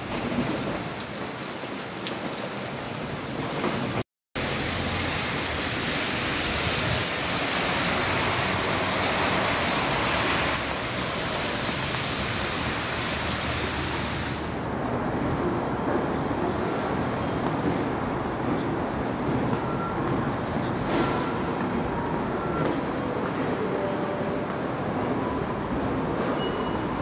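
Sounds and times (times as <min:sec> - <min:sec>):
rain on wet pavement: 0:00.0 - 0:14.8.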